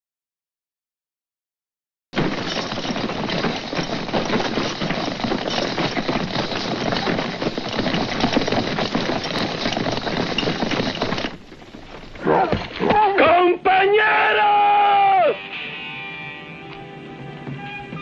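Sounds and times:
dense pattering noise with crackles: 2.2 - 13.8.

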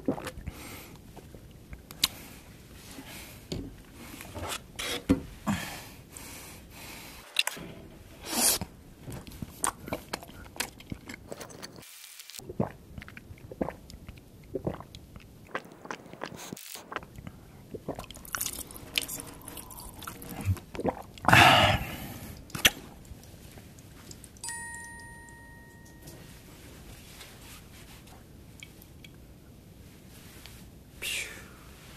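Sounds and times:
slurping and gulping: 0.0 - 0.6, 12.4 - 22.9
wet mouth clicks: 12.6 - 21.3
liquid squirted into mouth: 15.5 - 17.2.

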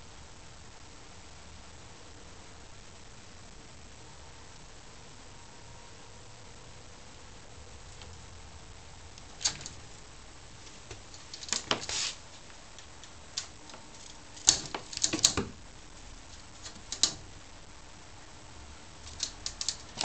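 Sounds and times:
cat claws scratching mesh screen: 9.2 - 9.9, 11.0 - 12.2, 13.0 - 15.6, 16.4 - 17.3, 19.0 - 20.0.

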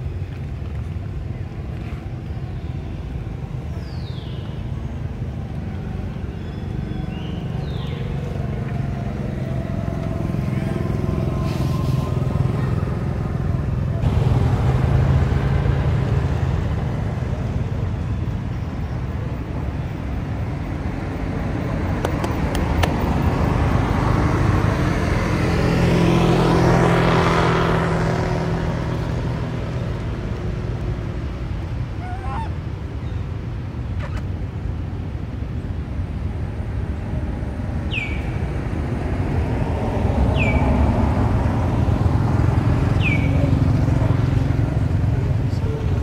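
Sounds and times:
vehicle engines humming: 0.0 - 46.0
vehicle passing close: 5.0 - 18.5, 20.5 - 32.8, 36.0 - 46.0.

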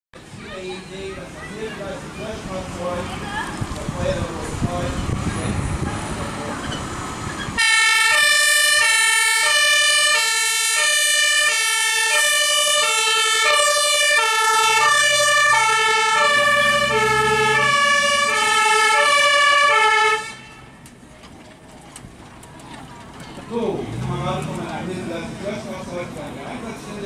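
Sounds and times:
fire engine two-tone siren: 7.5 - 20.6.

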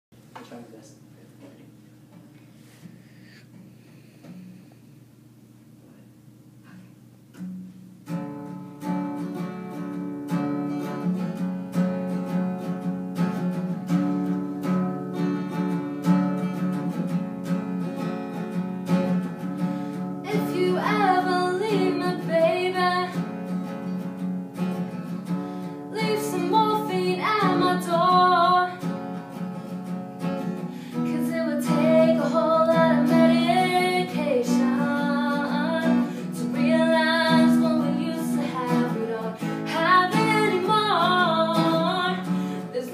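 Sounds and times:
acoustic guitar playing: 1.8 - 42.9
woman singing: 20.2 - 23.3, 25.9 - 29.0, 30.9 - 42.9.

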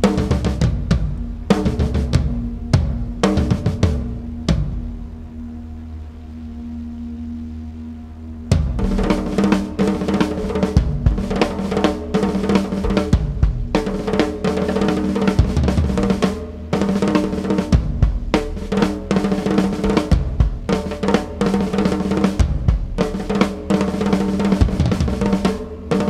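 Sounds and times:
deep bass drum hits: 0.0 - 5.0, 10.8 - 11.5, 12.9 - 14.0, 17.7 - 18.7, 19.8 - 20.7
drum kit playing: 0.0 - 5.0, 8.5 - 26.0
steady drone: 0.0 - 26.0.

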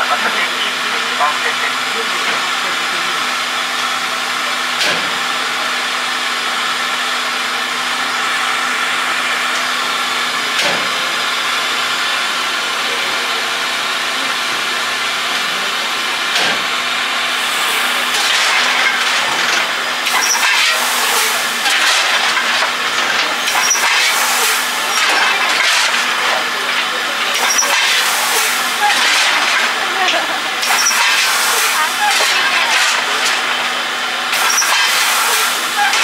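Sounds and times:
steam hissing: 14.6 - 36.0.

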